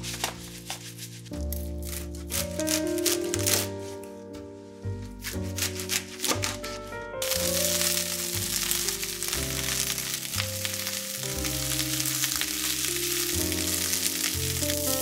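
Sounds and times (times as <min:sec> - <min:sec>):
soft background music: 0:00.0 - 0:15.0
greens sizzling in frying pan: 0:07.2 - 0:15.0.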